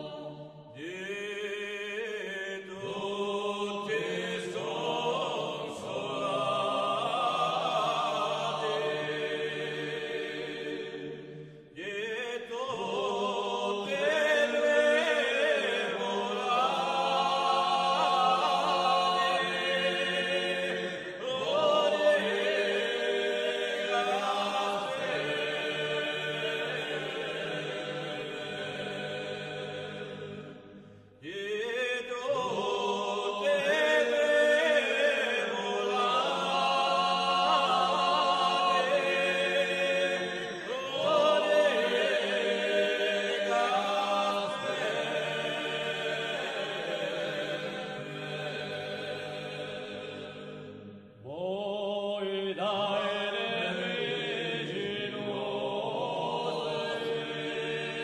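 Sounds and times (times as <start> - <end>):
choir singing slow phrases: 0.0 - 58.0.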